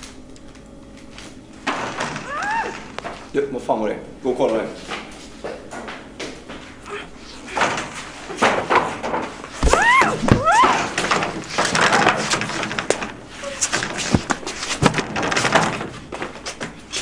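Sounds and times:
scuffling and knocks: 0:07.4 - 0:17.0.

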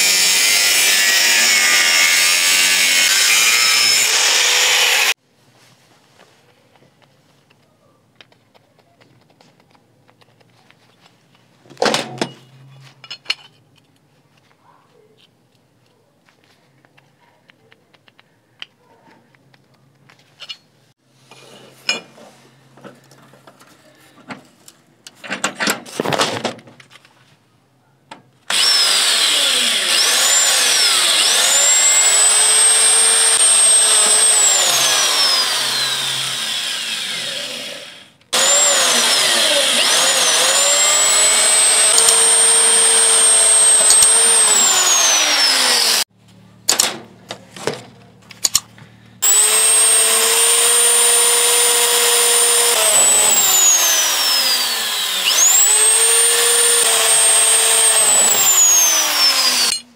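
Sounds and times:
electric drill whining: 0:00.0 - 0:05.2, 0:28.5 - 0:46.1, 0:49.2 - 0:59.8.

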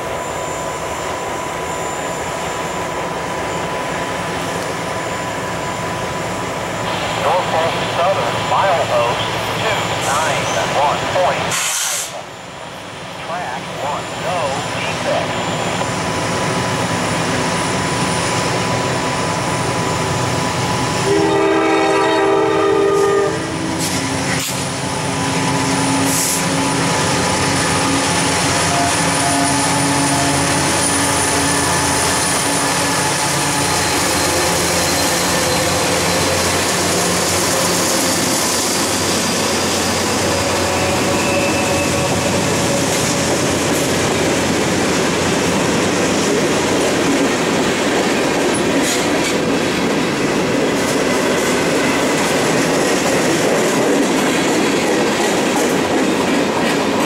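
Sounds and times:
freight train rumble and wheel clatter: 0:00.0 - 0:57.0
train horn blast: 0:21.0 - 0:24.0, 0:28.6 - 0:30.7.

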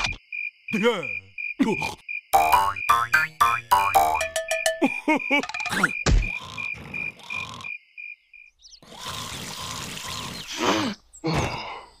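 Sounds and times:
cartoon creature grunts: 0:01.6 - 0:02.0
cartoon creature rasping breath: 0:08.9 - 0:11.9.

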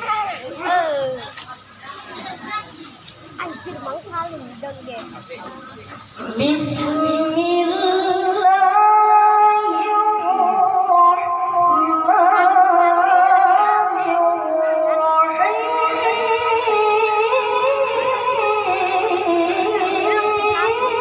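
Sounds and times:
boy chanting into microphone: 0:06.2 - 0:21.0.

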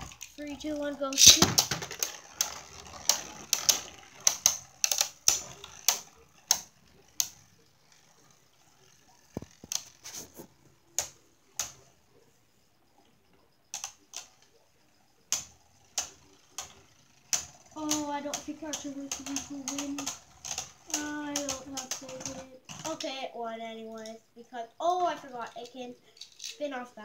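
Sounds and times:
spinning tops clacking: 0:00.0 - 0:10.3, 0:15.3 - 0:23.2.

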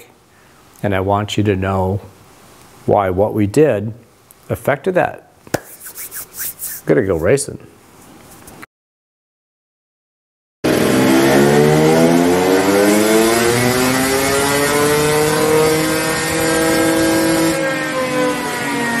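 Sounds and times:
motorcycle engine revving: 0:10.6 - 0:18.3.

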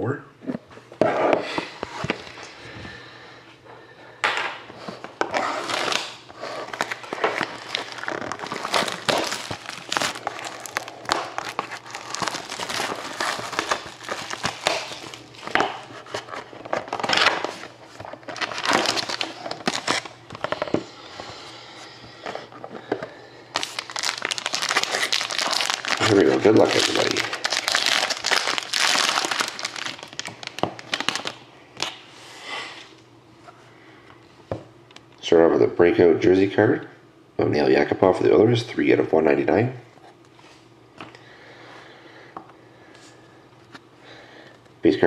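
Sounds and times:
plastic wrap crackling and tearing: 0:05.2 - 0:20.8, 0:23.5 - 0:32.0.

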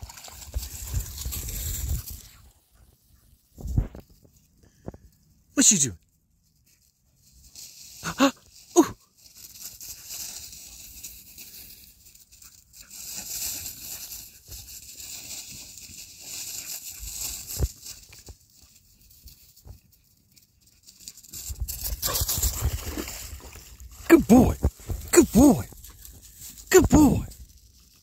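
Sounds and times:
footsteps crunching through dry leaves: 0:00.0 - 0:02.5, 0:07.2 - 0:19.9, 0:20.7 - 0:24.0, 0:25.7 - 0:26.7.

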